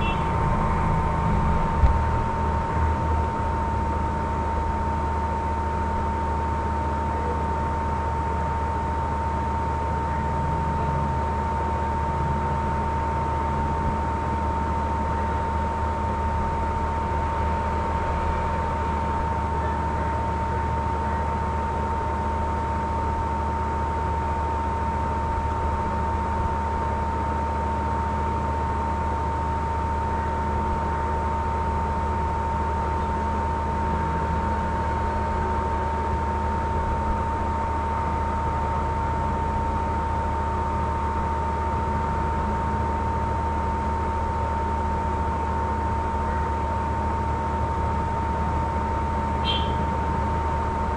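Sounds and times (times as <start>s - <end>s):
constant single-pitched tone: 0.0s - 2.0s
low hum: 0.0s - 4.8s.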